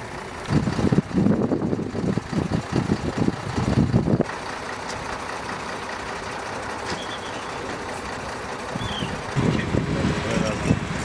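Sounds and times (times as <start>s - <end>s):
vehicle engine idling: 0.0s - 11.0s
faint high chirp: 6.9s - 7.6s, 8.8s - 9.2s.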